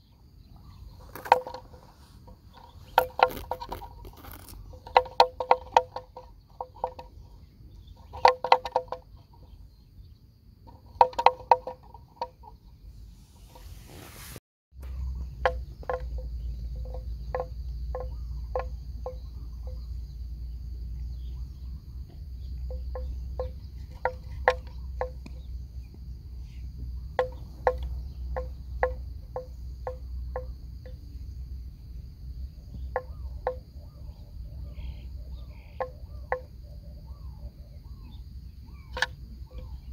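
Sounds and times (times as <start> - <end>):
wooden bell clonking: 1.0 - 9.5, 10.7 - 12.6, 14.8 - 19.8, 22.7 - 25.5, 27.1 - 31.0
high insect drone: 14.8 - 39.9.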